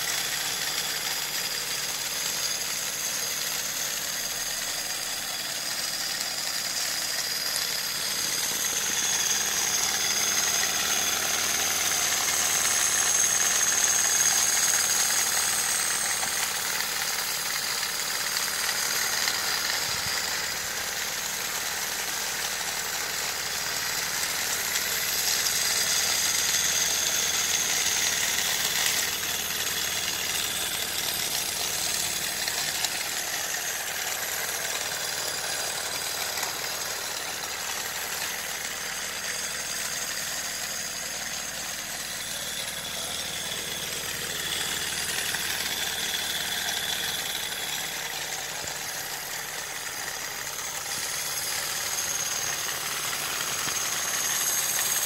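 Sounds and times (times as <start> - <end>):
steady high whine: 0.0 - 55.0
wooden mechanism rattling: 24.4 - 55.0.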